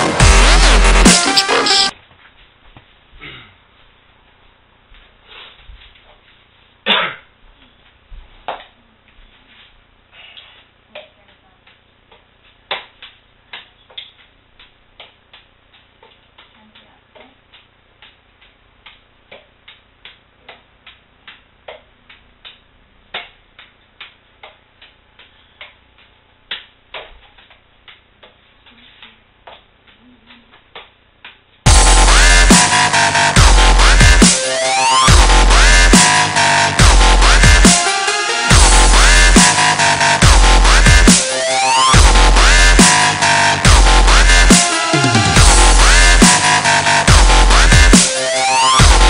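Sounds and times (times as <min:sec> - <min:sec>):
juggling balls slapping into hands: 0:10.4 - 0:31.6.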